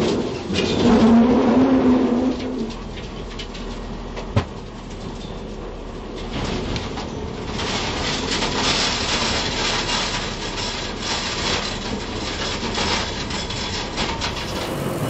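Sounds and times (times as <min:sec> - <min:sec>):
low engine drone: 0:14.0 - 0:15.0.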